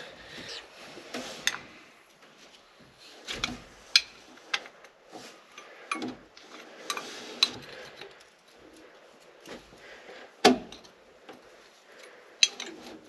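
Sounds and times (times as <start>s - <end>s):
wrench clinking on metal: 12.4s - 12.8s.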